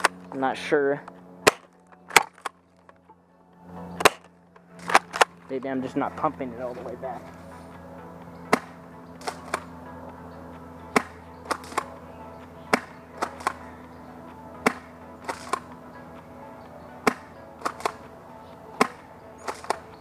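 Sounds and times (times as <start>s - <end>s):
airsoft shotgun shots: 1.4s - 2.6s, 4.0s - 5.3s, 8.5s - 9.7s, 10.9s - 11.9s, 12.7s - 13.6s, 14.6s - 15.7s, 17.0s - 18.0s, 18.8s - 19.8s.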